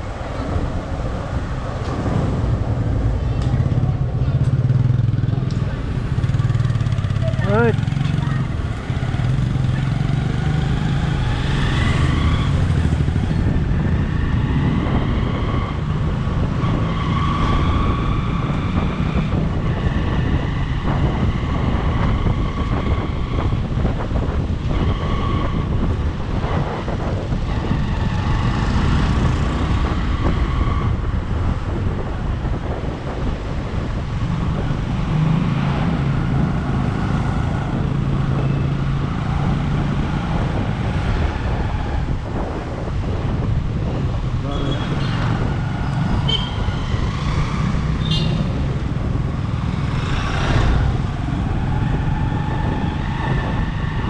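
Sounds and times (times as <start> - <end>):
wind rushing over microphone: 0.0 - 54.0.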